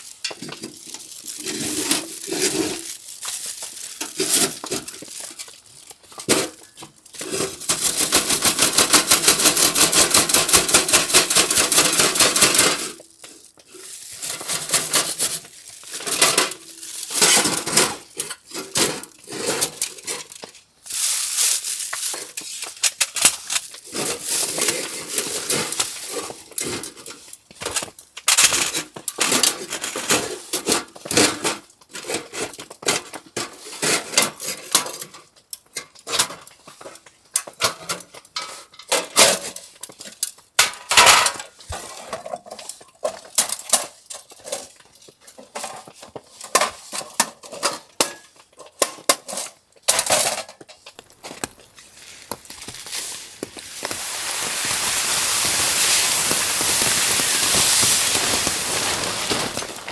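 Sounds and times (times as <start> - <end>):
camping gear clinking and rustling: 30.6 - 59.9.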